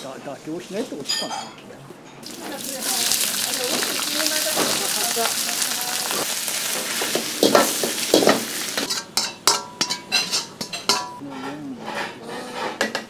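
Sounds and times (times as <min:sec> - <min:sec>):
cabbage sizzling in a wok: 0:02.2 - 0:09.6
ladle clanking on wok: 0:02.2 - 0:13.0.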